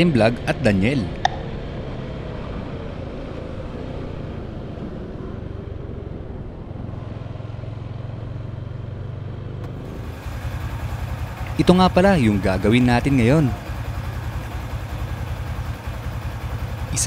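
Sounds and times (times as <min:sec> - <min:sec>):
motorcycle engine idling: 0:08.8 - 0:17.0.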